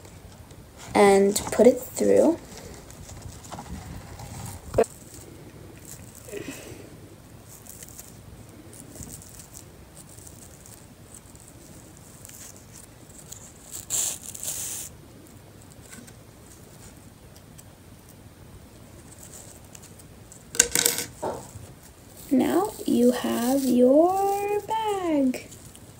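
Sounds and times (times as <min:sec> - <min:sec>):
fabric and ribbon rustling: 0:00.8 - 0:17.7, 0:18.7 - 0:20.5, 0:21.1 - 0:25.9.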